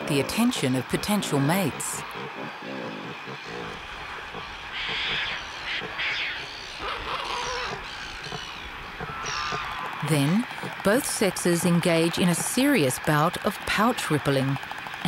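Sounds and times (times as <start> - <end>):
pelicans bill clapping: 0.0 - 15.0.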